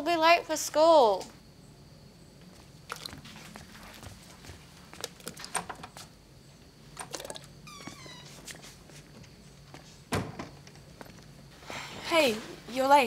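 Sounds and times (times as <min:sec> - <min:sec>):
footsteps: 0:02.4 - 0:06.1, 0:07.8 - 0:12.7.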